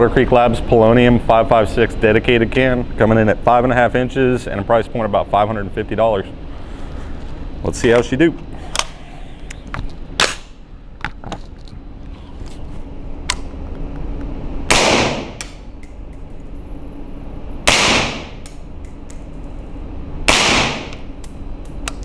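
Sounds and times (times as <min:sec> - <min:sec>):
suppressed rifle shots: 0:14.7 - 0:15.4, 0:17.7 - 0:18.3, 0:20.3 - 0:20.9.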